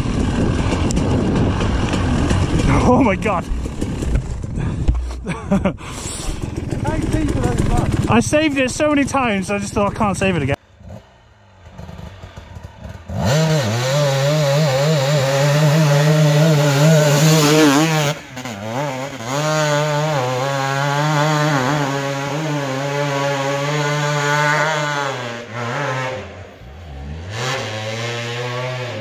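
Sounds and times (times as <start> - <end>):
dirt bike engine under throttle: 0.0 - 29.0.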